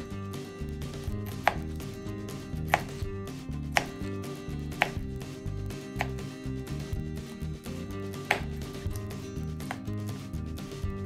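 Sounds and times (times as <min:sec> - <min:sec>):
knife cutting cucumber: 0:01.1 - 0:01.8, 0:02.6 - 0:03.0, 0:03.7 - 0:04.0, 0:04.7 - 0:05.0, 0:08.2 - 0:09.9.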